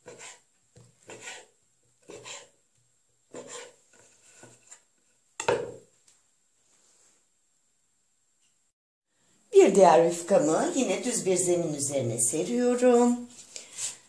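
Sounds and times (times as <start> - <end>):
knife cutting pastry: 1.0 - 2.5, 3.3 - 4.8.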